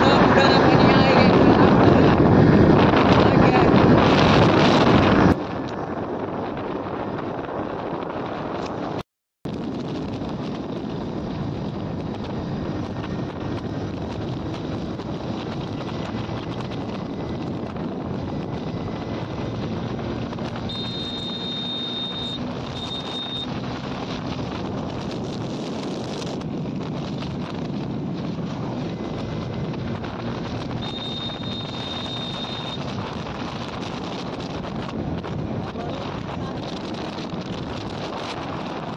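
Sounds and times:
vehicle engine and tyre noise: 0.0s - 38.9s
wind buffeting microphone: 0.0s - 38.9s
short high-pitched beeps: 20.7s - 23.5s, 30.8s - 32.9s.

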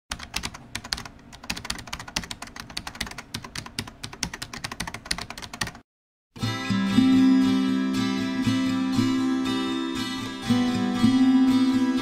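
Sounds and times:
fast typing on a keyboard: 0.1s - 5.8s.

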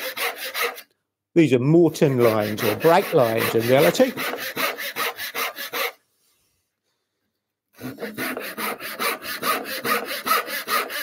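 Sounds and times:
saw cutting wood: 0.0s - 0.9s, 2.0s - 6.0s, 7.8s - 11.0s.

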